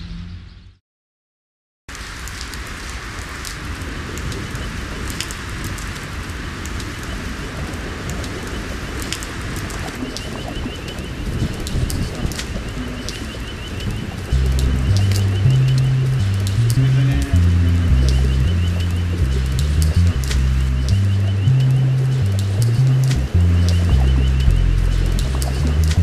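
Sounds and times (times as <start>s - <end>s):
rain on wet pavement: 1.9s - 26.0s
sharp drip ticks: 6.6s - 26.0s
birds chirping: 8.3s - 26.0s.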